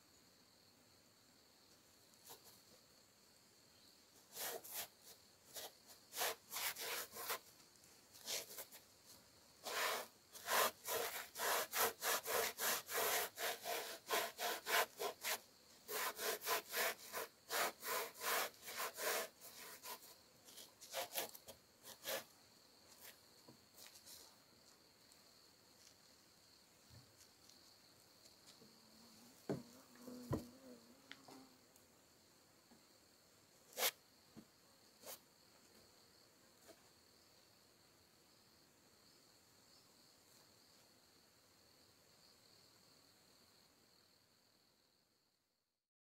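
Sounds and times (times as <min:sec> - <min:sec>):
socked feet scraping wood: 0:04.3 - 0:22.3, 0:29.5 - 0:30.5, 0:33.7 - 0:34.0.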